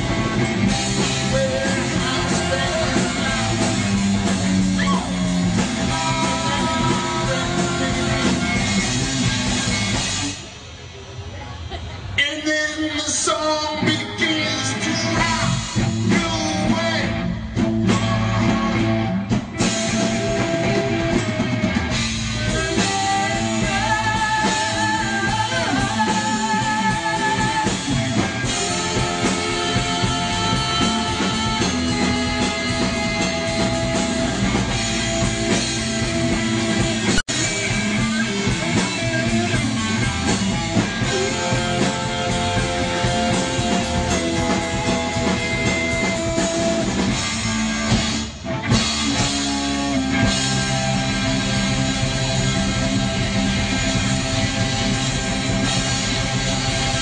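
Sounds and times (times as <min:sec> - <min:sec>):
person singing: 0:00.0 - 0:04.1, 0:04.7 - 0:09.0, 0:12.2 - 0:17.3, 0:19.8 - 0:34.7, 0:37.3 - 0:47.0
drum kit: 0:00.0 - 0:57.0
electric guitar: 0:00.0 - 0:57.0.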